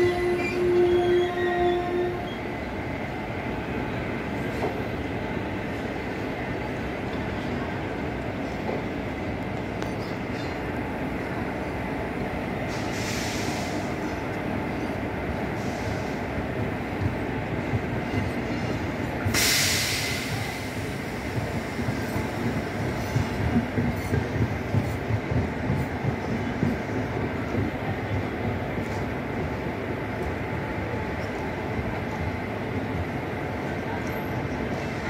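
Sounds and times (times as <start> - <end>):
train wheels rumbling on track: 0.0 - 35.0
brief hiss: 12.7 - 13.9, 19.3 - 20.9.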